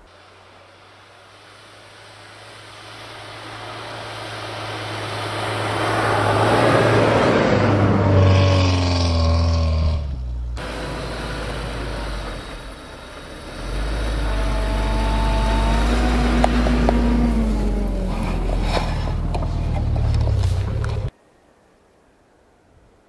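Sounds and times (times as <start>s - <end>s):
wheels spinning in snow: 0.0s - 21.1s
suv engine working hard: 10.5s - 21.1s.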